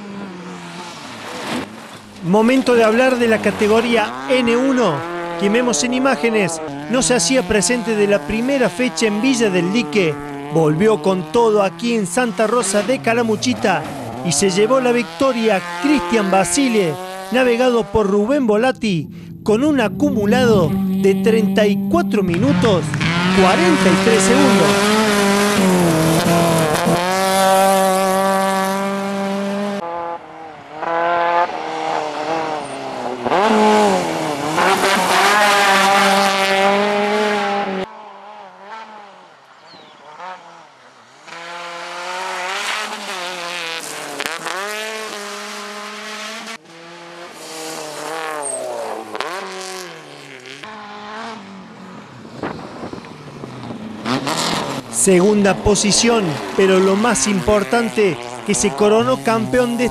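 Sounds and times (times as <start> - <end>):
rally car engines revving: 0.0 - 59.9.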